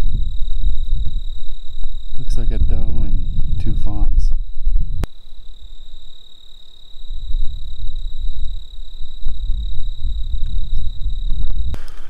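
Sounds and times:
insects trilling: 0.0s - 12.0s
low rumbling noise: 0.0s - 12.0s.

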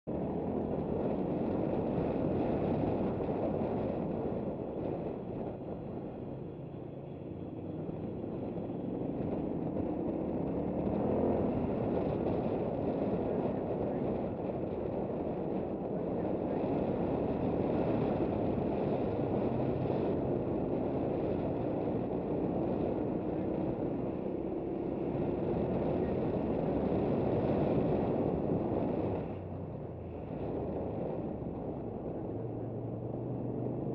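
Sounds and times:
wind noise on microphone: 0.1s - 33.9s.

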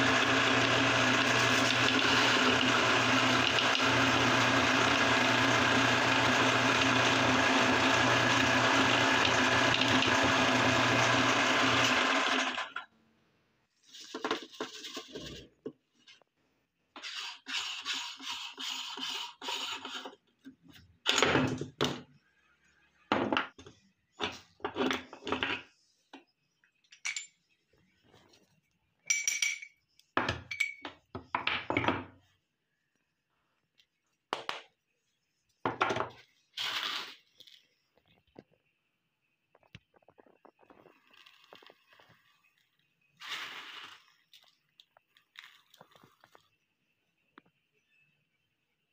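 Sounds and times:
electric meat grinder running: 0.0s - 12.8s.

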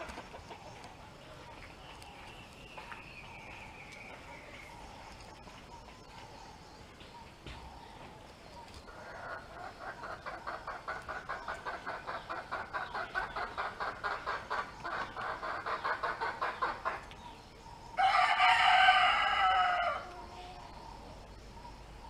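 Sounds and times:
chickens clucking: 0.0s - 21.9s
rooster crowing: 18.0s - 20.7s.

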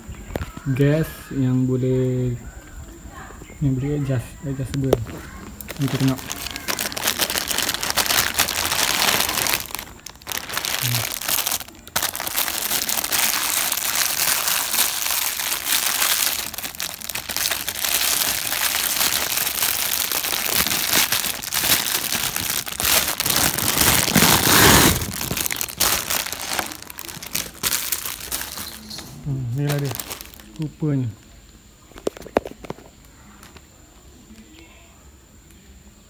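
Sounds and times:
plastic bag crinkling: 4.8s - 31.1s.

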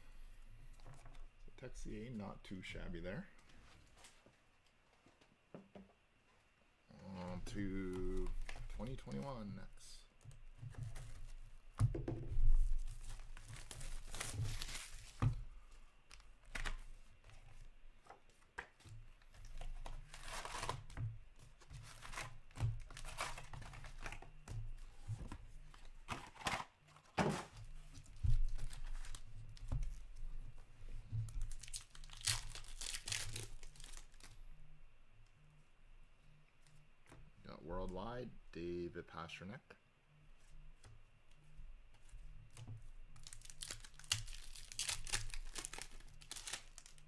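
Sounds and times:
foil packs ripping: 12.8s - 15.2s, 20.0s - 20.9s, 31.4s - 34.3s, 43.2s - 47.0s
packaging tearing and crinkling: 12.8s - 15.2s, 19.5s - 20.9s, 21.9s - 24.2s, 31.3s - 34.4s, 43.2s - 47.0s.

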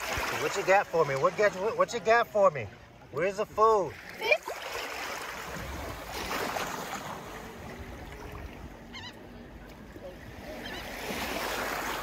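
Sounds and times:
seawater sloshing and lapping: 0.0s - 3.2s, 3.9s - 12.0s.

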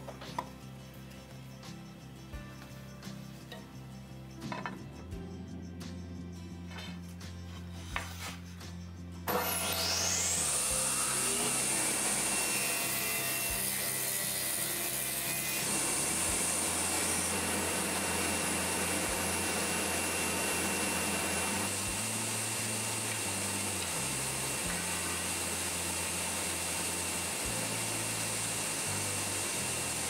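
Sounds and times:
boards being planed: 9.3s - 30.0s
jointer whining: 9.3s - 30.0s.

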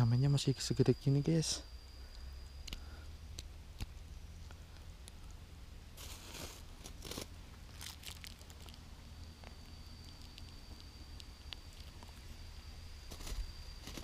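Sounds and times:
rustling and crinkling: 6.0s - 12.3s, 13.1s - 14.0s.

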